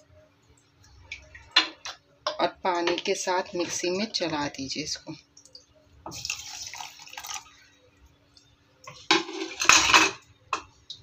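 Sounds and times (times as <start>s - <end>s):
water pouring into steel jar: 6.1s - 7.5s.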